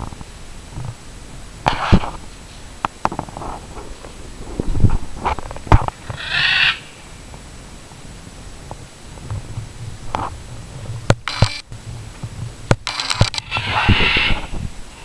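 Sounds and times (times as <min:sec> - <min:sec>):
harsh bird call: 0:06.0 - 0:07.0, 0:13.4 - 0:15.0
sharp clicking bird notes: 0:11.1 - 0:11.7.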